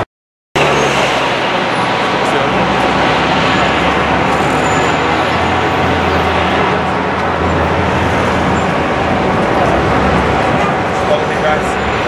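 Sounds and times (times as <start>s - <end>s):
heavy vehicle engine humming: 0.6s - 12.0s
road traffic noise: 0.6s - 12.0s.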